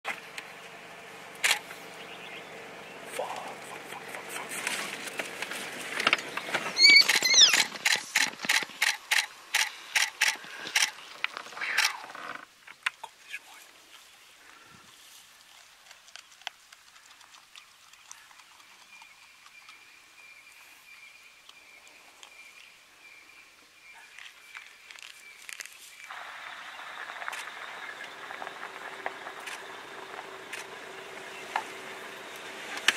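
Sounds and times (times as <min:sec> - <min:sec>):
wild dogs squealing: 0:06.7 - 0:07.8.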